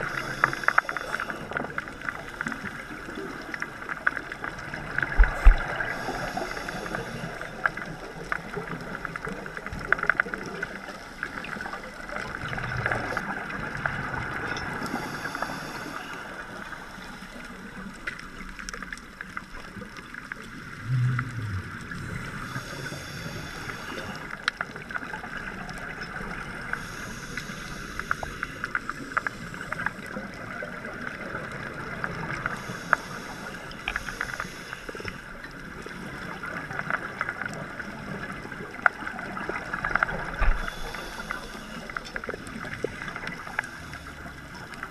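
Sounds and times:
sharp underwater clicks: 0:00.0 - 0:02.6
muffled underwater wash: 0:00.0 - 0:44.9
regulator breathing and bubbles: 0:00.0 - 0:44.9
low bubbling rumble: 0:03.6 - 0:06.1, 0:19.9 - 0:22.6.

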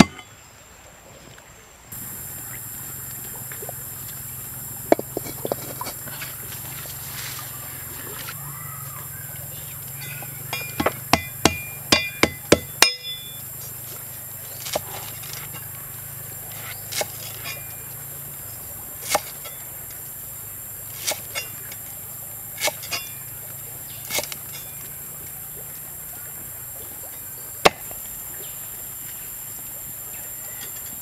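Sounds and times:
steady high hiss: 0:01.9 - 0:31.0
knife slicing lemongrass: 0:19.0 - 0:19.5, 0:21.0 - 0:21.5.

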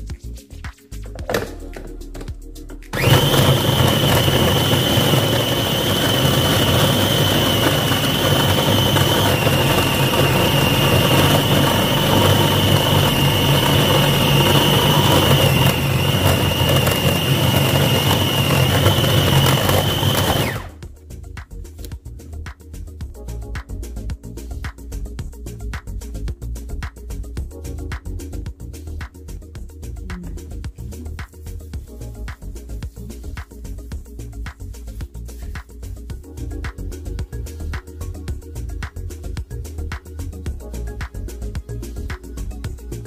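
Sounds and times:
food processor motor whining: 0:02.9 - 0:20.8
blade grinding meat: 0:03.0 - 0:20.8.

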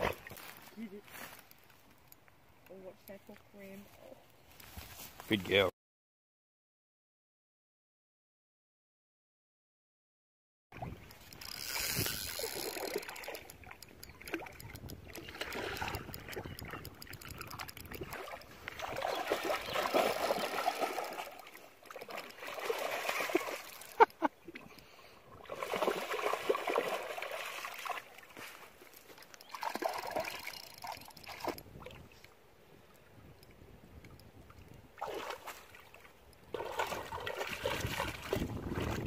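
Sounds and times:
dog splashing through water: 0:18.2 - 0:23.7.

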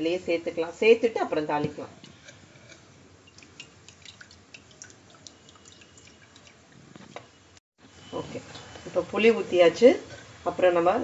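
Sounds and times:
liquid dripping into a pot: 0:02.0 - 0:06.9.

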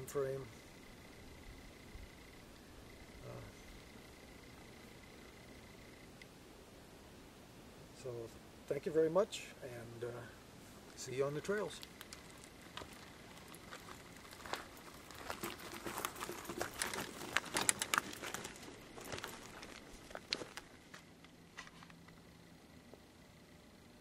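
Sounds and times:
footsteps crunching on gravel: 0:11.6 - 0:22.0
bike being wheeled: 0:12.0 - 0:21.0.

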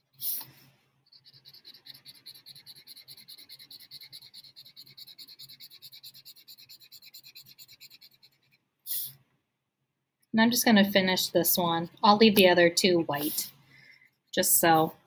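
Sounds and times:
marker scratching on paper: 0:00.0 - 0:09.2, 0:13.2 - 0:13.5.

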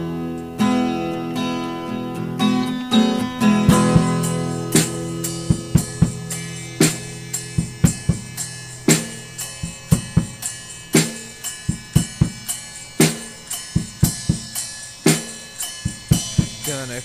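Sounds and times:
drum-kit beat: 0:02.4 - 0:17.0.

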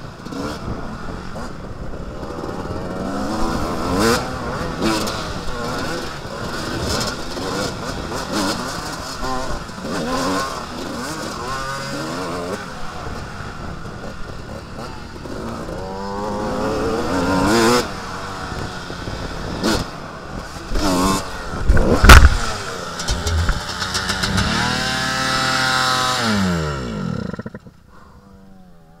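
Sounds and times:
motocross bike engine revving: 0:13.9 - 0:27.8
loud crash impact: 0:23.0 - 0:25.4.

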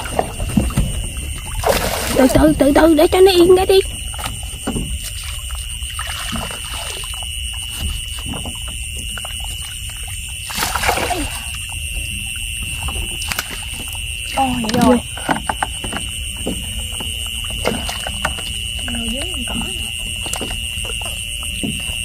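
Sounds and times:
light water splashes: 0:00.0 - 0:21.7
night insects chirring: 0:00.0 - 0:22.0
small knocks: 0:14.6 - 0:22.0.

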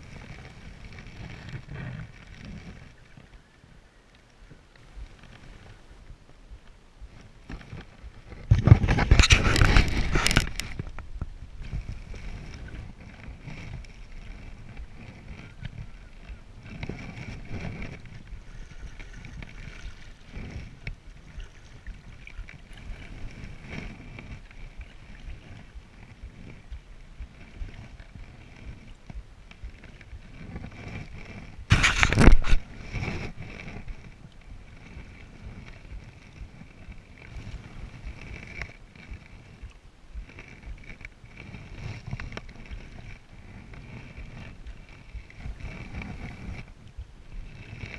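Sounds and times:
paddle strokes in water: 0:00.0 - 0:47.9
microphone noise bursts: 0:04.5 - 0:47.9.

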